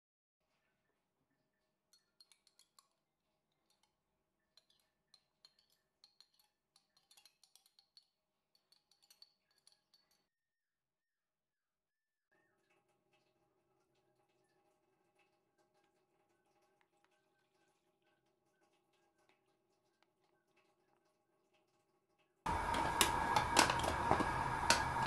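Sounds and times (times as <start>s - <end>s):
metal spoon clinking on steel bowl: 1.9s - 10.3s.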